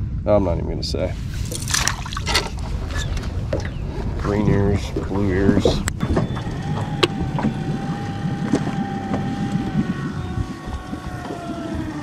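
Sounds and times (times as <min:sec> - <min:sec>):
footsteps on boat deck: 0:04.9 - 0:12.0
motor whine: 0:06.0 - 0:12.0.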